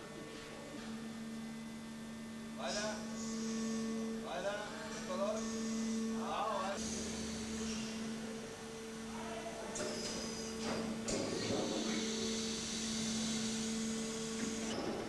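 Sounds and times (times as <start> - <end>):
hydraulic units humming: 0.0 - 15.0
machine hisses: 6.8 - 8.1, 9.8 - 14.8.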